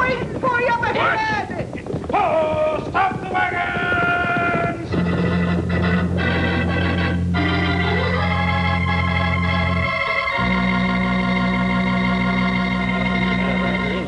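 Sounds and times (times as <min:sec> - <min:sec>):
organ chords: 0:04.8 - 0:14.0.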